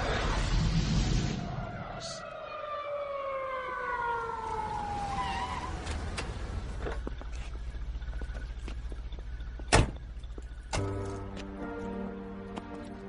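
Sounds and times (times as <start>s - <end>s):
siren-like wail sliding down: 0.0s - 6.5s.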